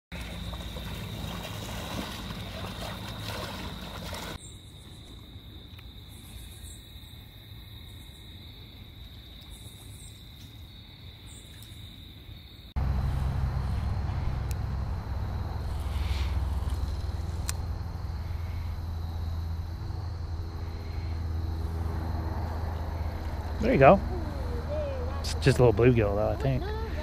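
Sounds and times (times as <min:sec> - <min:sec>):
loud low rumble: 0:12.8 - 0:26.4.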